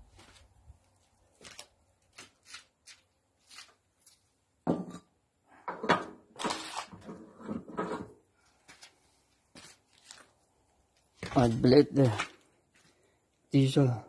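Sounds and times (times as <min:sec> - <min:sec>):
metal clunks and scrapes: 0:04.7 - 0:08.2.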